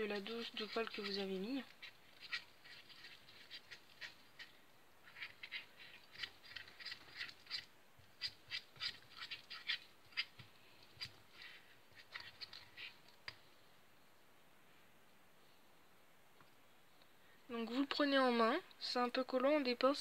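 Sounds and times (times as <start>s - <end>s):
spoon stirring slime: 0.0s - 13.5s.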